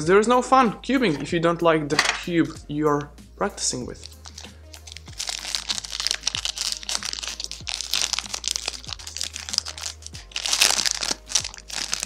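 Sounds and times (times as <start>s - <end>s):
background music with steady beat: 0.0s - 12.0s
plastic wrap crinkling: 4.0s - 12.0s.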